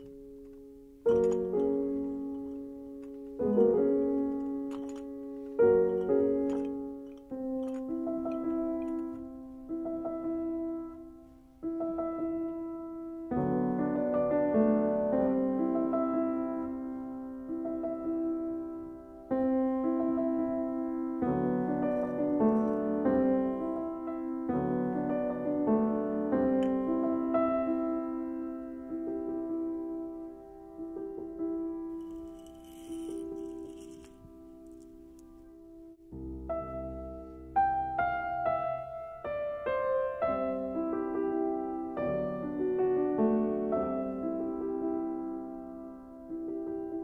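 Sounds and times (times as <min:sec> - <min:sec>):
slow soft piano chords: 0:00.0 - 0:47.0.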